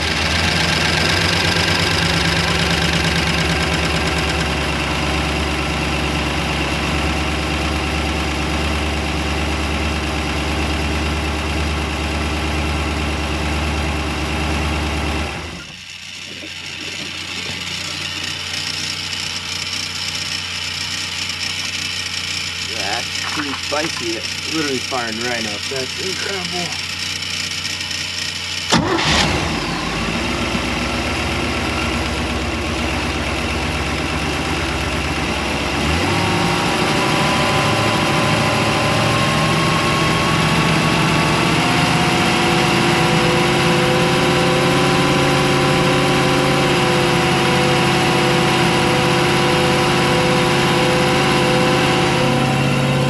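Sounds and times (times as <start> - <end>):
boat engine running: 15.8 - 32.0.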